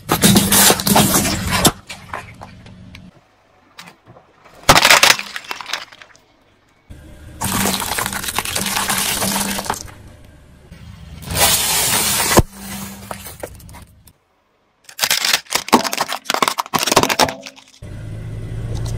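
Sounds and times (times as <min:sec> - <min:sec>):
tyre crushing brittle objects: 0:00.0 - 0:02.6, 0:03.8 - 0:06.2, 0:07.4 - 0:09.9, 0:14.8 - 0:17.8.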